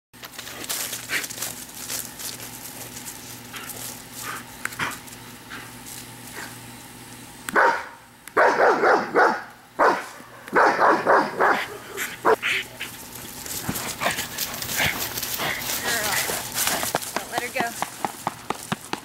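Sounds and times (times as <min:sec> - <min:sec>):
dog barking: 0:07.5 - 0:12.6
rustling: 0:12.8 - 0:18.9.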